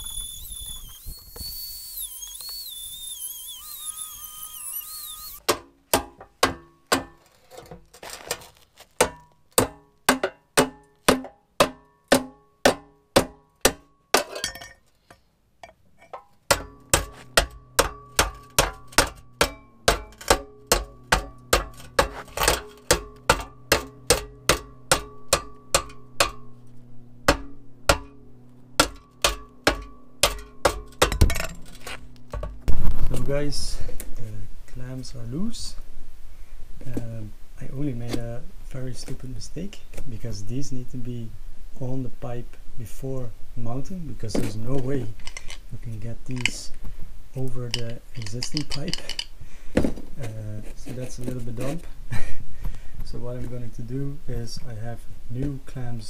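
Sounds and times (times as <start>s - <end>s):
rotary tool whine cutting pipe: 0.0s - 5.4s
hammer blows on metal pipe: 16.5s - 26.6s, 27.2s - 28.2s.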